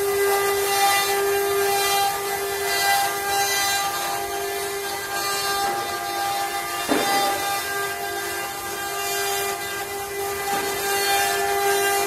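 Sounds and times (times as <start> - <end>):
router spindle motors whining: 0.0 - 12.0.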